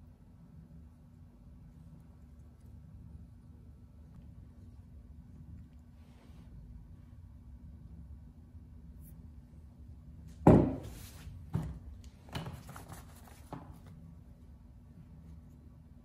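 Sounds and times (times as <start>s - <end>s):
steady low hum: 0.0s - 16.0s
paper rustling: 12.4s - 13.9s.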